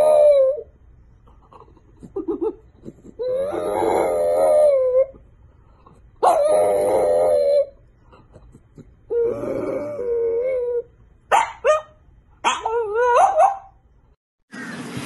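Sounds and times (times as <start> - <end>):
dog howling: 0.0 - 0.7, 3.2 - 5.2, 6.2 - 7.8, 9.1 - 10.9
dog whimpering: 0.0 - 0.7, 1.5 - 5.2, 6.2 - 10.9.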